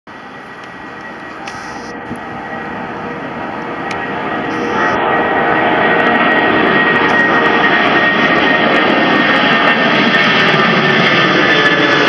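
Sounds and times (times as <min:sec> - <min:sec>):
faint high whine: 0:00.1 - 0:09.0
jet engines climbing overhead: 0:00.1 - 0:12.0.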